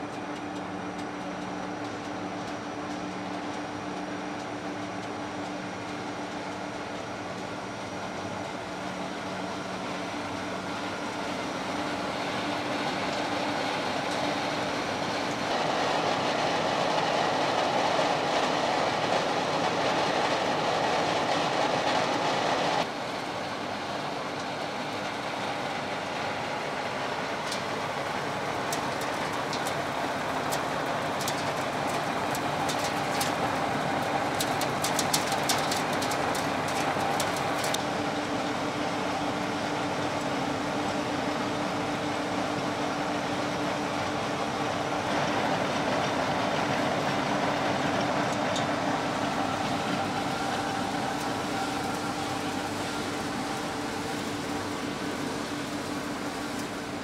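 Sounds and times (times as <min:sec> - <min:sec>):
machinery humming: 0:00.0 - 0:57.0
pellets rattling out of chute: 0:27.6 - 0:37.9.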